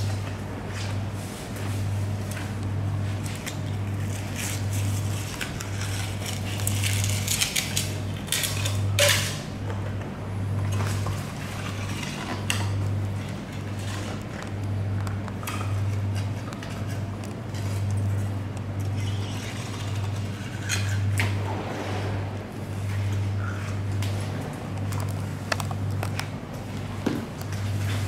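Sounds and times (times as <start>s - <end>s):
pulsing machine hum: 13.0s - 27.9s.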